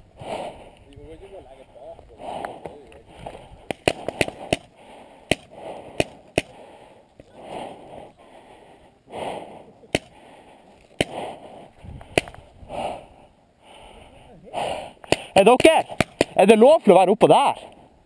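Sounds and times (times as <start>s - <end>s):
hard breathing: 0.0s - 0.9s, 2.0s - 16.3s
paintball marker pops: 3.6s - 4.7s, 5.3s - 6.6s, 9.9s - 10.2s, 11.0s - 11.2s, 12.0s - 12.4s, 15.0s - 16.4s.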